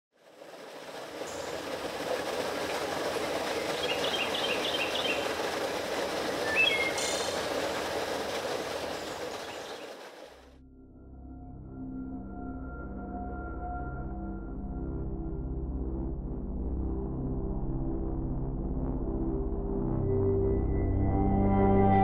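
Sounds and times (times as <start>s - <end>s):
train clattering past: 0.2s - 10.5s.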